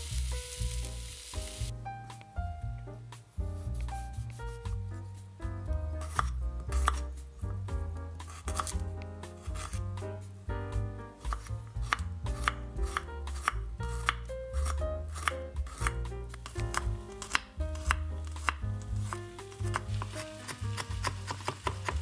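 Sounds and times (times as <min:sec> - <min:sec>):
background music: 0:00.0 - 0:22.0
knife chopping on wooden board: 0:06.0 - 0:07.1, 0:08.2 - 0:10.0, 0:11.2 - 0:22.0.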